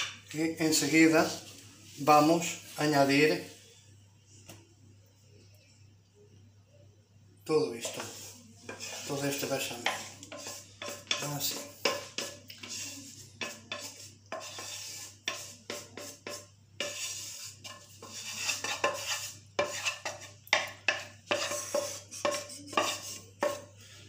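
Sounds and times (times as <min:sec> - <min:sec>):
wooden spoon scraping frying pan: 0:07.8 - 0:24.0.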